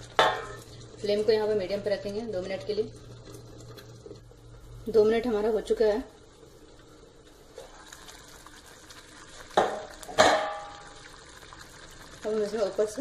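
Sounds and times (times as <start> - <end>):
metal lid clanking: 9.6 - 10.8.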